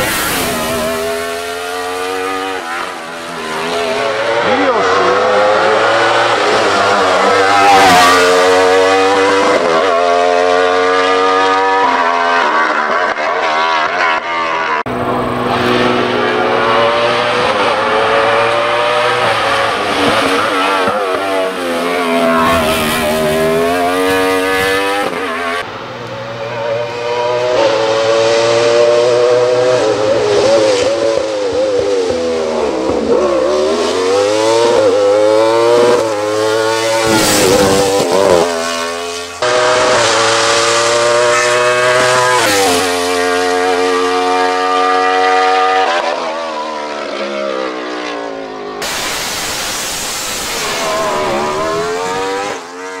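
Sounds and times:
race car engine accelerating: 0.0 - 53.0.

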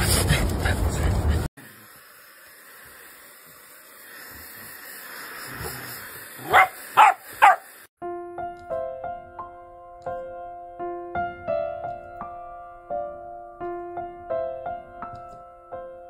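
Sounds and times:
puppy barking: 6.4 - 7.7
soft piano music: 8.0 - 16.0.

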